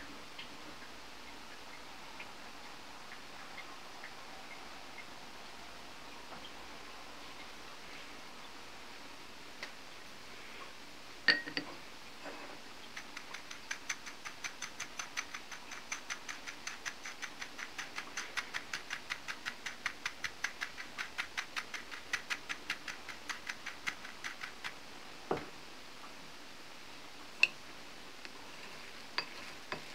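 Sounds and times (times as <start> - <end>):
crumbs ticking in shaken bowl: 12.8 - 24.9.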